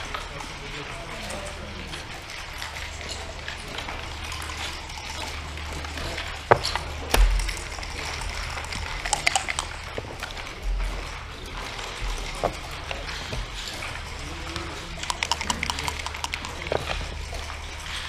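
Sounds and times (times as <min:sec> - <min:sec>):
steady low hum: 0:00.0 - 0:18.0
dice clicking on board: 0:08.8 - 0:10.2, 0:15.0 - 0:17.2
checkers knocking on wooden board: 0:15.0 - 0:17.2.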